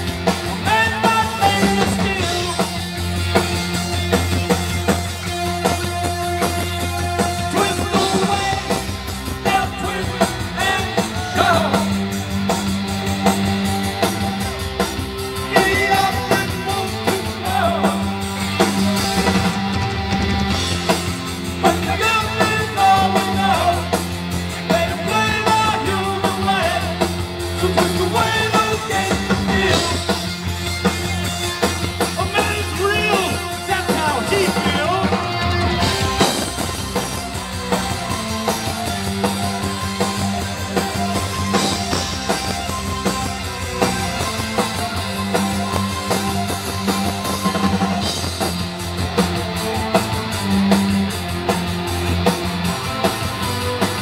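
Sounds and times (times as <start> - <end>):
rock band playing live: 0.0 - 54.0
person singing lead vocal: 0.4 - 2.9, 6.6 - 12.2, 15.4 - 18.3, 21.6 - 30.5, 32.1 - 36.3.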